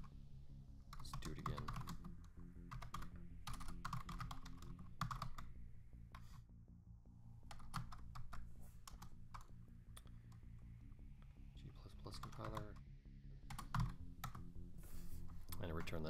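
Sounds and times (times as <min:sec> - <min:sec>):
keyboard typing clicks: 0:00.9 - 0:05.5, 0:13.5 - 0:14.5.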